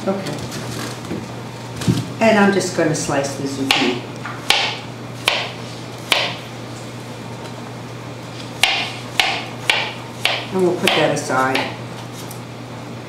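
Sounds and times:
knife chopping on cutting board: 0:03.7 - 0:06.4, 0:08.6 - 0:11.8.

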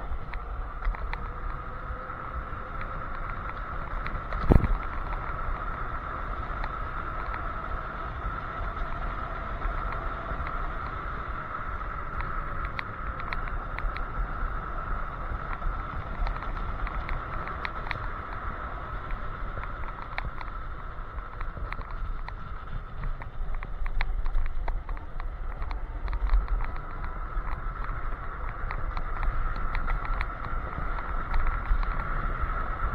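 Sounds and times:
small rattling clicks: 0:00.0 - 0:01.8, 0:15.4 - 0:32.9
electric scooter motor hum: 0:00.0 - 0:32.9
road rumble: 0:00.0 - 0:32.9
wind noise: 0:00.0 - 0:32.9.

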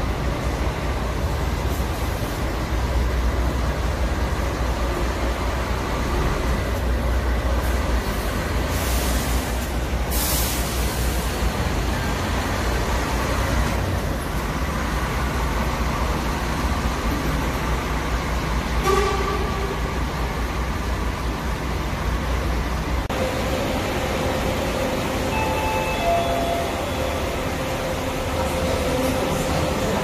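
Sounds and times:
bus engine rumbling: 0:00.0 - 0:30.0
air hissing: 0:07.6 - 0:11.4.

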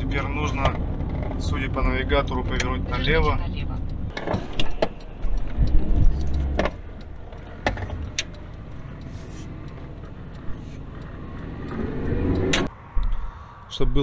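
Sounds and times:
low engine and road rumble: 0:00.0 - 0:14.0
sharp clicks and knocks: 0:03.8 - 0:13.2.

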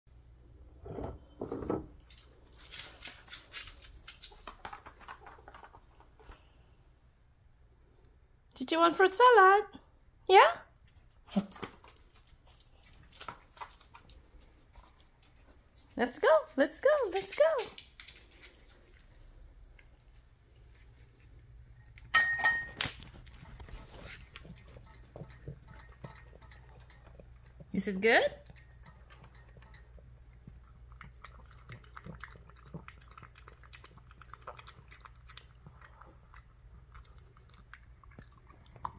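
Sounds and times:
dog licking and eating: 0:10.9 - 0:38.9
bowl clinking down: 0:22.1 - 0:22.9.

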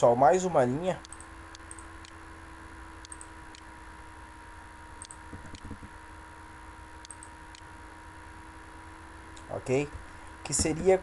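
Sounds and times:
steady electrical hum: 0:00.0 - 0:11.0
mouse button clicking: 0:05.0 - 0:05.9.

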